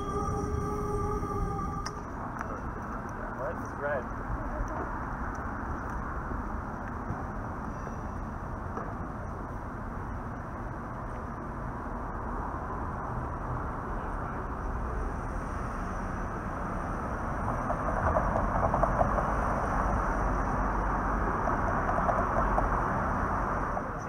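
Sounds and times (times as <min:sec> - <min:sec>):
streetcar running noise: 0:00.0 - 0:24.0
wheels rattling on rail: 0:15.8 - 0:24.0.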